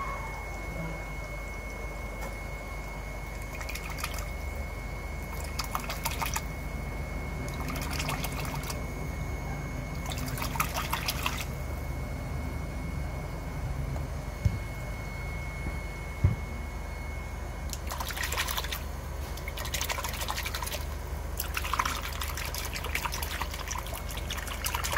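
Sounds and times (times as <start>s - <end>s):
steady low hum: 0.0s - 24.9s
water splashing in a plastic tub: 3.3s - 4.5s, 5.2s - 6.6s, 7.4s - 8.9s, 9.9s - 11.6s, 17.7s - 24.9s.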